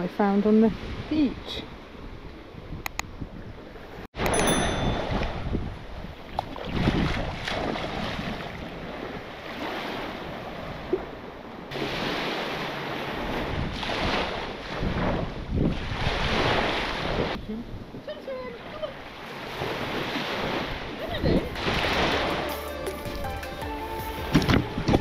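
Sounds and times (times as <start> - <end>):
wind buffeting microphone: 0.0 - 11.5, 13.0 - 18.9, 19.5 - 22.3, 24.3 - 25.0
small waves washing on sand: 6.2 - 17.4, 18.1 - 22.5.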